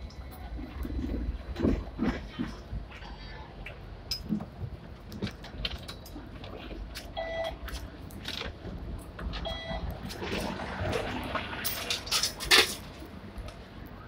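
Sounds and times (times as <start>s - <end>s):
tram rumble: 0.0s - 14.0s
card reader beeps: 7.2s - 7.6s, 9.4s - 9.8s.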